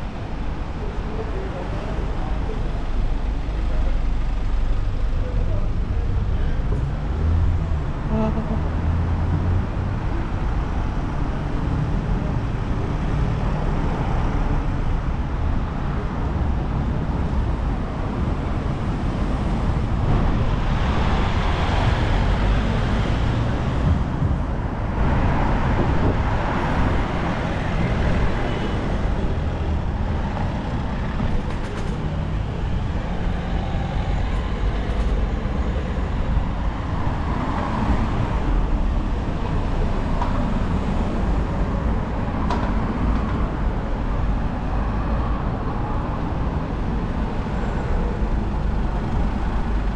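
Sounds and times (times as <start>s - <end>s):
road traffic rumble: 0.0s - 49.9s.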